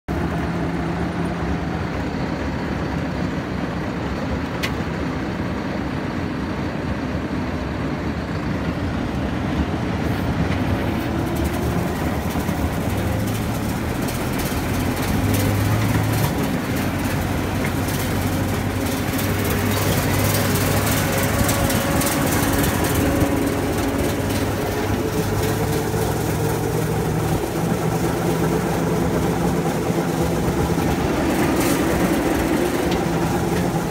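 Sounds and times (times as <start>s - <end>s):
tractor diesel engine running: 0.1s - 33.9s
rattling clatter: 10.3s - 33.9s.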